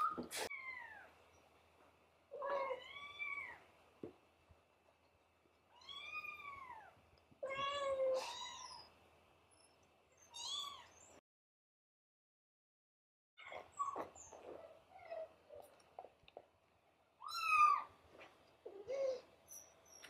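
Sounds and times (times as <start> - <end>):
cats meowing: 2.3 - 3.7, 5.7 - 8.9, 10.2 - 11.2, 17.2 - 18.0.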